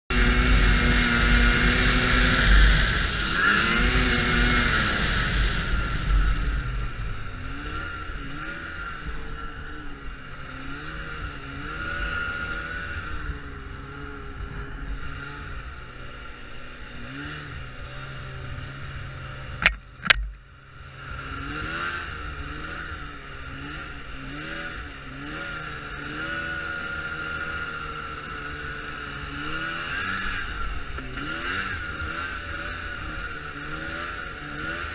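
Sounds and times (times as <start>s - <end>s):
snowmobile engine revving: 0.1s - 34.9s
sharp knocks: 19.6s - 20.4s.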